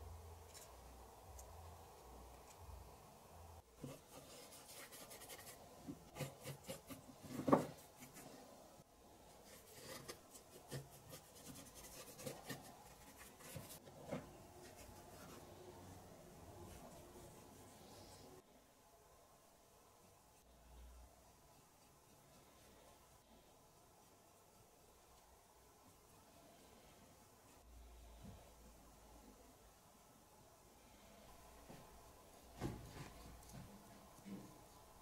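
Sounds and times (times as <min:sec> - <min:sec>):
paintbrush scratching on wood: 0:03.8 - 0:08.4, 0:09.4 - 0:15.6.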